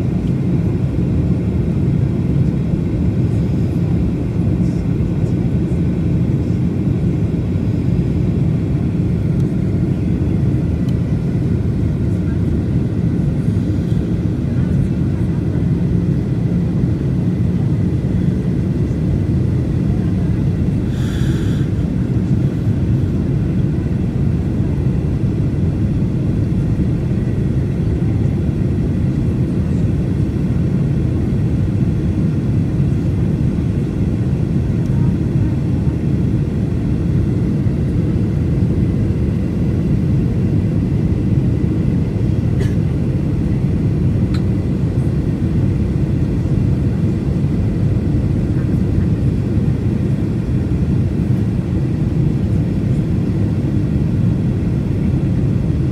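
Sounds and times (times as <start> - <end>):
airliner engines low rumble: 0.0 - 55.9
faint high whine: 20.8 - 21.9.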